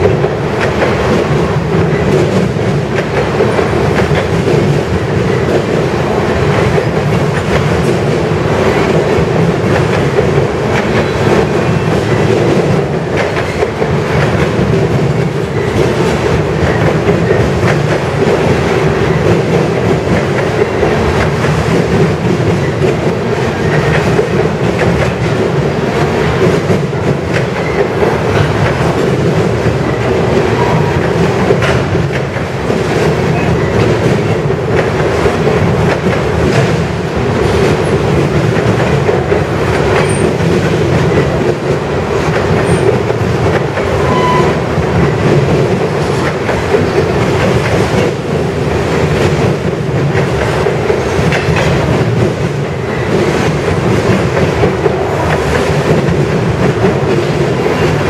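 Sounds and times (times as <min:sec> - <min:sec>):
freight train rumbling past: 0:00.0 - 0:58.0.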